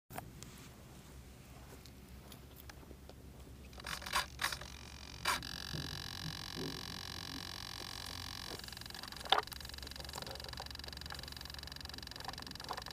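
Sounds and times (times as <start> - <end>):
electric motors whining: 3.7 - 12.9.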